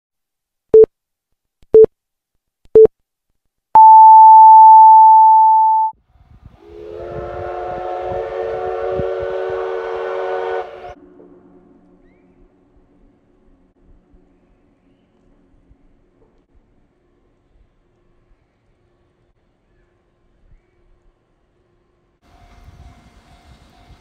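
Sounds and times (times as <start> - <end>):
radio time signal beeps: 3.8 - 5.9
steam locomotive whistle: 6.5 - 11.0.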